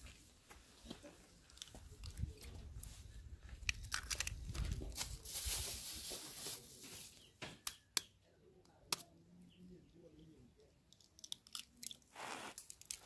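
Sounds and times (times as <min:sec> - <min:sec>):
plastic bag rustling: 0:04.8 - 0:07.2.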